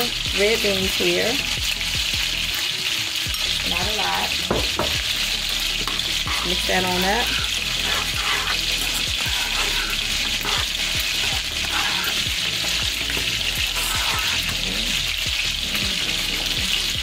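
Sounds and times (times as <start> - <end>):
sizzling hiss: 0.0 - 17.0
spoon scraping a saucepan: 4.5 - 15.1.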